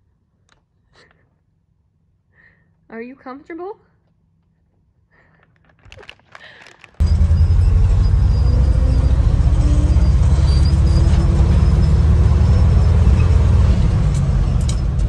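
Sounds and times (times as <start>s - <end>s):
truck engine rumbling: 6.8s - 15.0s.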